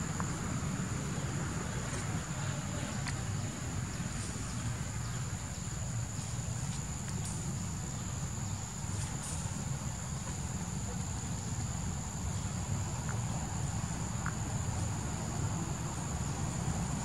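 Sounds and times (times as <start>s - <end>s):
insects droning: 0.0s - 17.0s.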